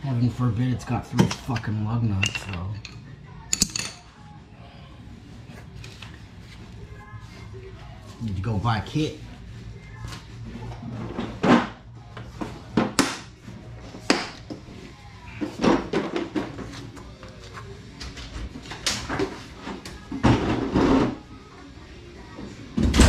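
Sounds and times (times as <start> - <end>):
tools clanking and knocking: 1.1 - 4.0.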